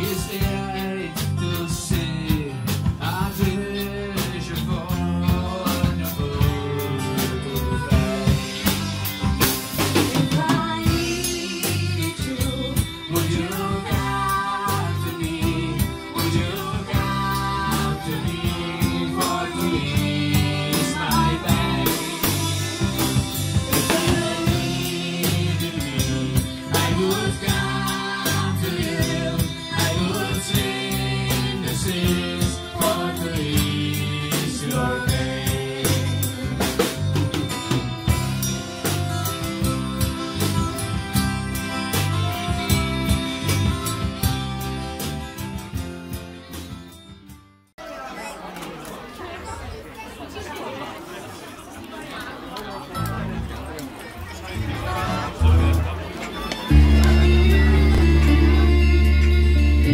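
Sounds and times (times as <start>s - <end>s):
person singing: 0.0s - 9.0s, 10.0s - 37.0s, 56.7s - 59.9s
drum kit: 0.0s - 47.7s, 54.6s - 59.9s
band music: 0.0s - 50.2s, 51.6s - 59.9s.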